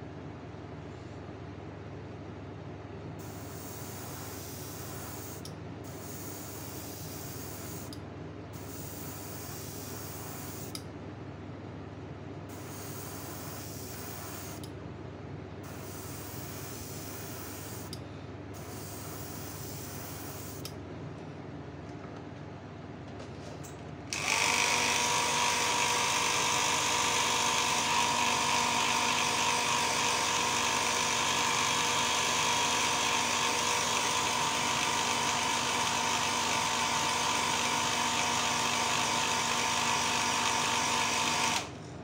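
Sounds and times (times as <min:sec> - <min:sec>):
airbrush spraying paint: 0:03.2 - 0:08.0, 0:08.6 - 0:10.8, 0:12.5 - 0:14.6, 0:15.6 - 0:18.0, 0:18.6 - 0:20.7.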